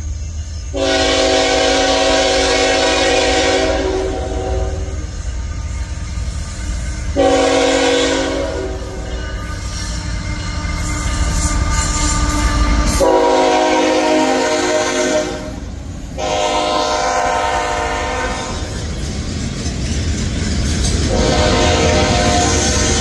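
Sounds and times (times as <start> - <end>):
diesel locomotive engine rumble: 0.0 - 23.0
train air horn blasts: 0.7 - 5.1, 7.1 - 9.4, 11.0 - 18.8, 21.1 - 23.0.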